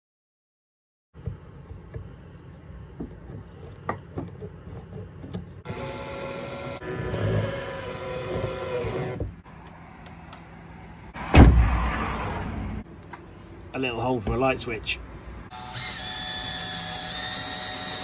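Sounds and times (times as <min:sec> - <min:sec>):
cordless drill whirring: 0:15.5 - 0:18.0.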